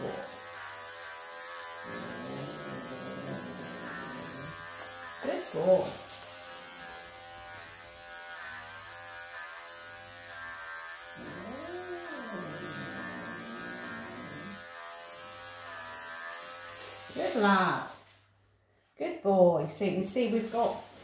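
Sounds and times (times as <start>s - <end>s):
pet clippers buzzing: 0.0s - 17.9s
cat growling: 1.8s - 6.0s, 11.2s - 14.6s.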